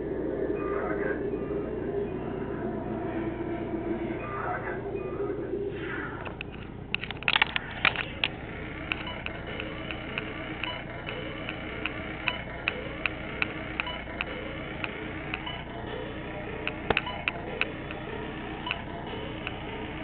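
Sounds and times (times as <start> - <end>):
low hum: 0.0 - 20.0
knocks and clicks: 6.2 - 20.0.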